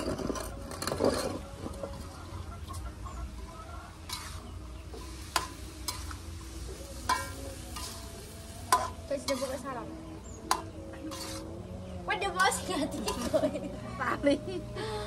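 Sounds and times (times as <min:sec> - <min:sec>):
spatula scraping in a wok: 0:00.0 - 0:13.7
faint frying sizzle: 0:02.0 - 0:13.8
spatula clanking against pan: 0:07.0 - 0:07.9, 0:08.7 - 0:09.5, 0:10.5 - 0:11.4.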